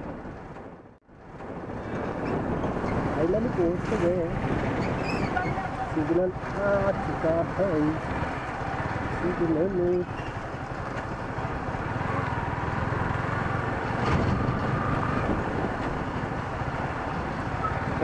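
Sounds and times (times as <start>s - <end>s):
wind noise on microphone: 0.0s - 18.0s
motorcycle engine running: 5.3s - 14.0s.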